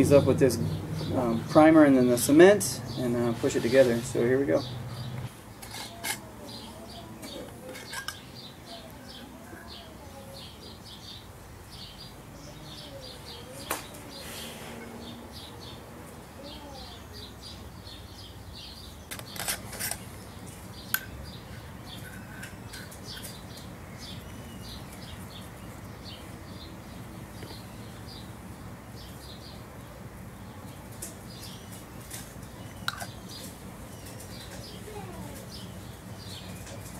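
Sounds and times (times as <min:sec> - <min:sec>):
small birds chirping: 0:00.0 - 0:36.9
clicks and knocks of cans: 0:32.2 - 0:33.2.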